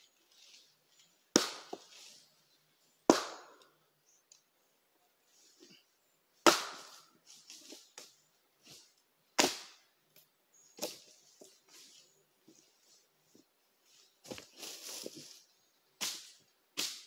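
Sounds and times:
axe chopping wood: 1.3s - 1.9s, 3.1s - 3.6s, 6.4s - 7.0s, 9.4s - 9.8s.

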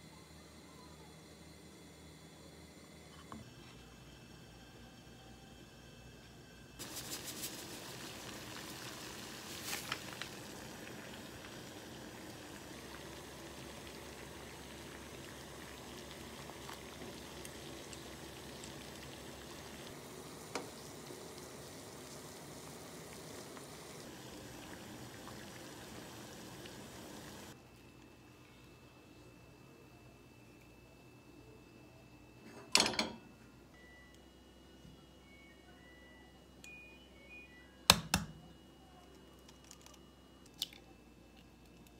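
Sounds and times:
water boiling in a saucepan: 3.5s - 27.6s.

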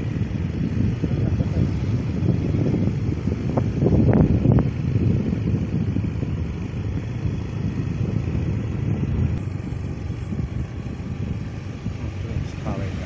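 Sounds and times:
motorcycle engine rumble: 0.0s - 13.0s
wind buffeting microphone: 0.0s - 13.0s.

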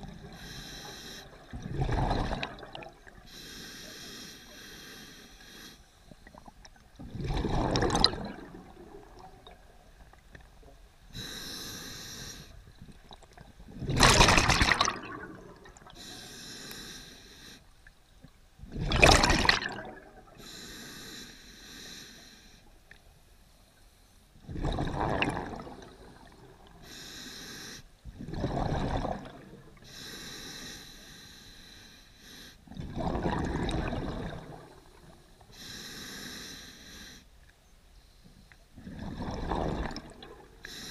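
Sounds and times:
regulator inhale hiss: 0.3s - 1.5s, 3.2s - 6.1s, 11.1s - 12.7s, 16.0s - 17.8s, 20.4s - 22.7s, 26.8s - 27.9s, 29.8s - 32.7s, 35.4s - 37.4s, 40.6s - 40.9s
exhaled bubbles gushing: 1.4s - 3.2s, 6.3s - 9.8s, 12.8s - 16.0s, 18.7s - 20.4s, 24.5s - 26.6s, 28.2s - 29.7s, 32.8s - 35.0s, 38.8s - 40.6s.

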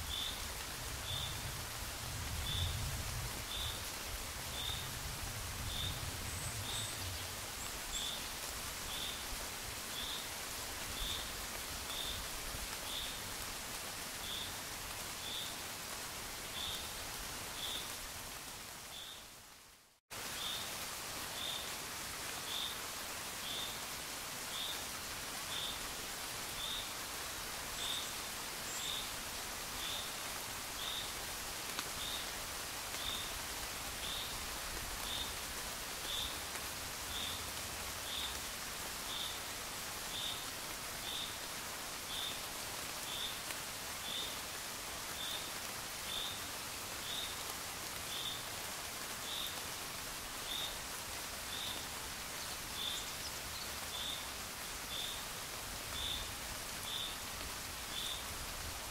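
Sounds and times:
steady gentle rain: 0.0s - 58.9s.

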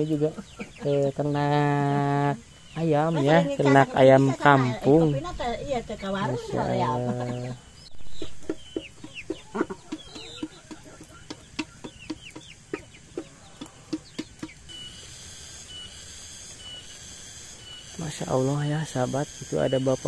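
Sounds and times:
chickens clucking: 0.0s - 15.9s
high insect buzz: 0.0s - 20.0s.

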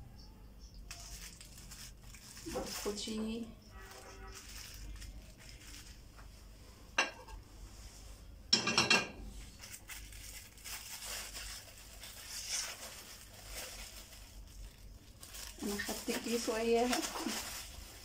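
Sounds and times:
plastic bag crackle: 0.7s - 6.4s, 9.4s - 18.0s
soft rustling: 0.9s - 6.5s, 9.4s - 18.0s
metal bowl clink: 8.5s - 9.2s.

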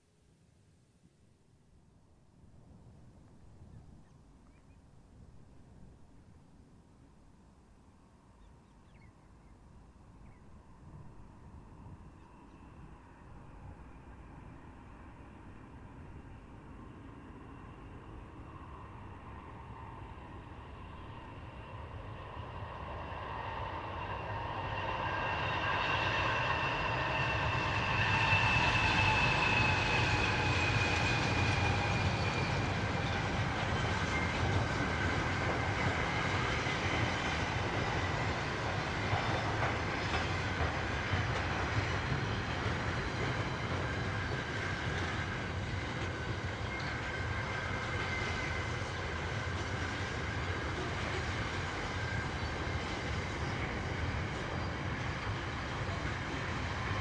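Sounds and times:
freight train rumbling past: 10.5s - 57.0s.

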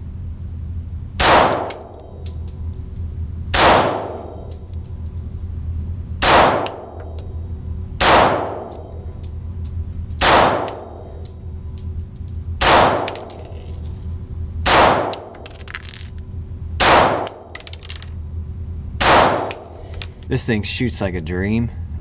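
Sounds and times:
pistol shots echoing indoors: 1.2s - 2.0s, 3.6s - 4.5s, 6.2s - 7.2s, 8.0s - 8.9s, 10.2s - 11.1s, 12.6s - 13.2s, 14.6s - 15.2s, 16.8s - 17.4s, 19.0s - 19.6s.

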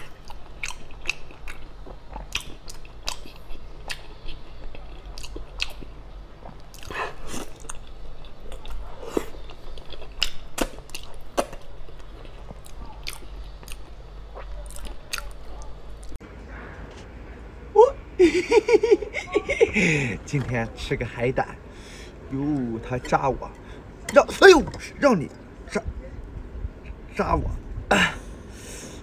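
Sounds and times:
biting and chewing: 0.0s - 16.2s.

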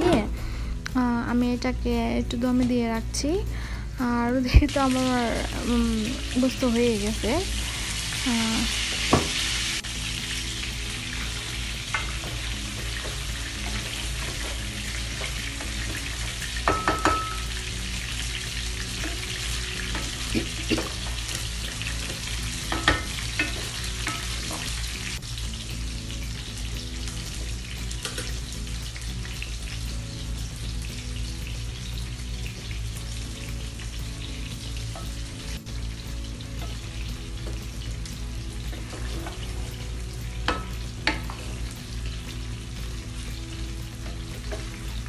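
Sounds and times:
chicken sizzling in frying pan: 4.4s - 45.0s
utensils knocking against pan: 11.8s - 17.6s, 19.0s - 21.4s, 22.0s - 24.8s, 28.0s - 28.4s, 40.4s - 41.5s.

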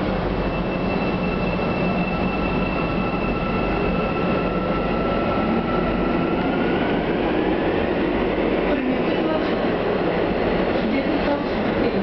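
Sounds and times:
metro train rumble with whine: 0.0s - 12.0s.

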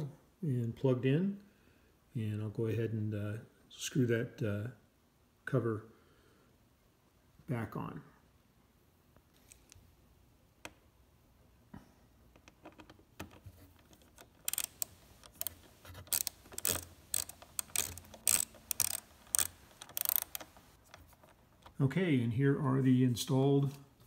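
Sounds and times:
screwdriver clicking: 12.4s - 21.2s.

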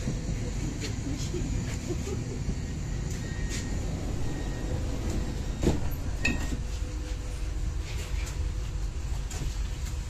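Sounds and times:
train low rumble: 0.0s - 10.0s
sliding train door closing: 3.0s - 6.8s.

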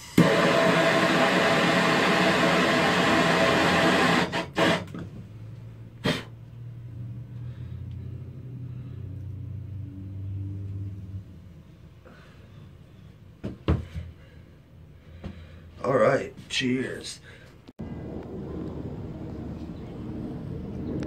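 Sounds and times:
propane torch hissing: 0.0s - 4.9s
low steady rumble: 5.0s - 12.0s, 17.8s - 21.0s.

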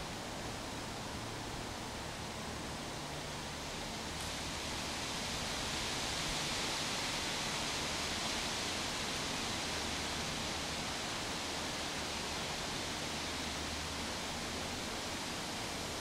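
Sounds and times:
steady outdoor hiss: 0.0s - 16.0s.

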